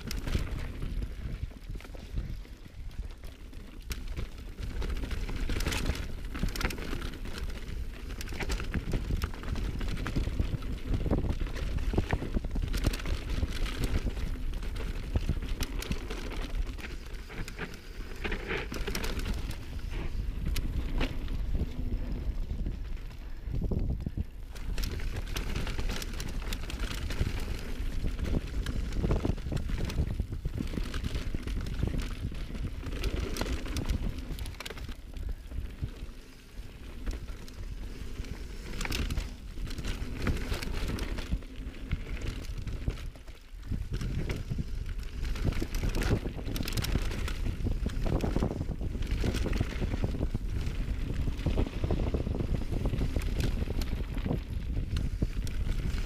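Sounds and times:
bike clattering and rattling: 0.0 - 56.0
bike tyres rolling: 0.0 - 56.0
wind buffeting microphone: 4.2 - 56.0.

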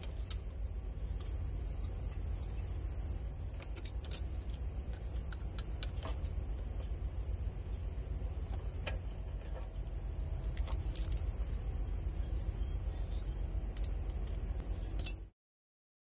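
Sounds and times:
small metal parts clinking: 0.0 - 2.2, 3.5 - 6.4, 8.6 - 15.3
steady low rumble: 0.0 - 15.3.

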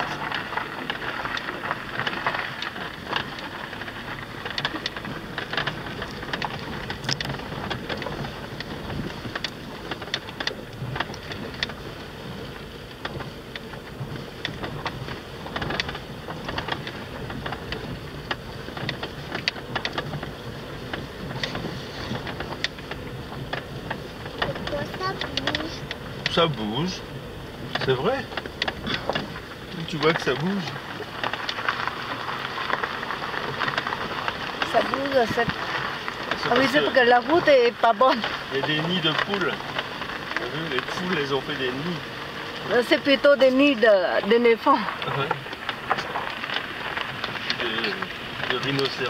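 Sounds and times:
car body rattling: 0.0 - 49.0
tyres crunching on gravel: 0.0 - 49.0
stones knocking: 27.2 - 49.0.

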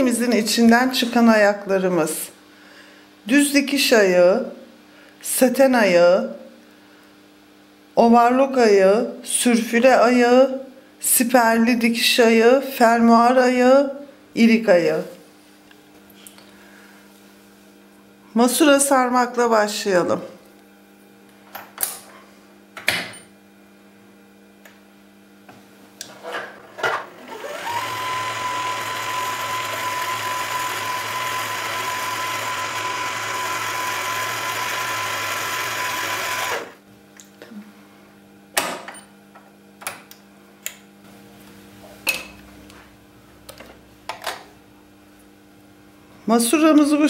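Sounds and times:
sewing machine motor whine: 27.2 - 36.8.

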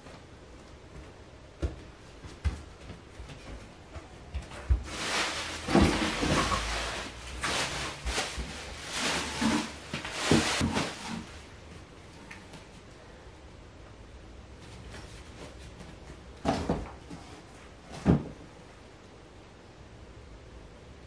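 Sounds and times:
knocks of boxes on floor: 4.4 - 8.6, 16.4 - 17.1, 17.9 - 18.4
boxes rustling: 4.4 - 11.5.

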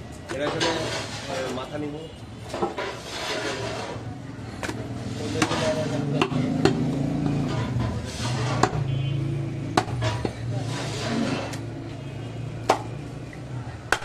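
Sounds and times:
cleaver chopping meat on wood: 6.2 - 7.0, 8.4 - 8.8, 9.7 - 10.4, 12.6 - 12.9.

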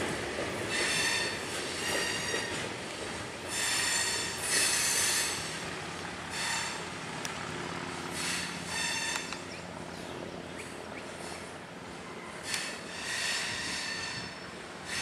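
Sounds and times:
train wheels squealing on rails: 0.0 - 2.8, 3.4 - 5.6, 6.3 - 6.9, 8.1 - 9.8, 10.6 - 15.0
rumble of train cars: 0.0 - 15.0.

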